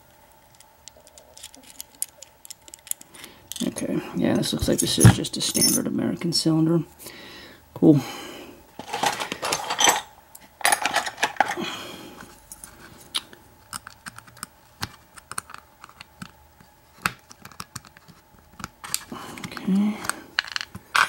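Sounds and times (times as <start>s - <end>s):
metal lock parts clicking: 0.5s - 3.8s.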